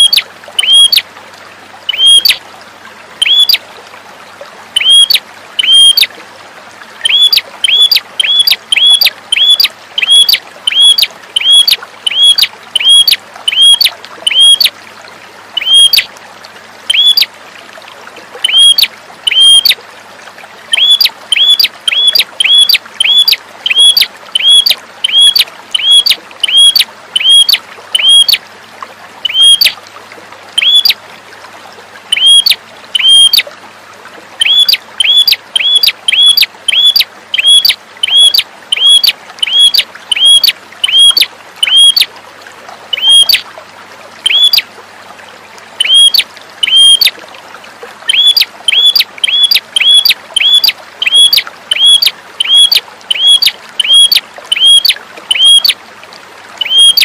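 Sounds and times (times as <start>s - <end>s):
bird calling sharp notes: 0.0s - 1.0s, 1.9s - 2.4s, 3.2s - 3.6s, 4.8s - 6.1s, 7.0s - 14.7s, 15.6s - 16.0s, 16.9s - 17.3s, 18.4s - 19.7s, 20.7s - 28.4s, 29.2s - 29.7s, 30.6s - 31.0s, 32.2s - 33.4s, 34.4s - 42.1s, 42.9s - 43.4s, 44.3s - 44.6s, 45.8s - 47.1s, 48.1s - 55.8s, 56.6s - 57.0s.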